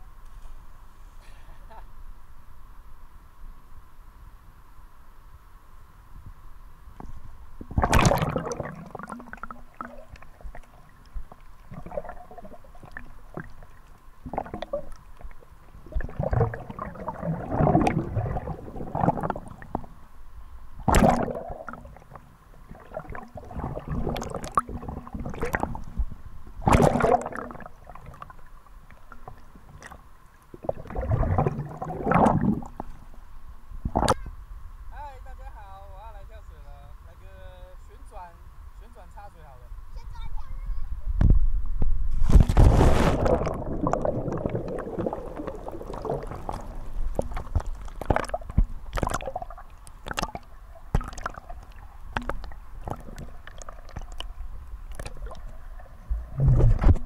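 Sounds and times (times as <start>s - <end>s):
water splashing and sloshing: 7.0s - 20.0s, 20.8s - 33.2s, 42.1s - 57.0s.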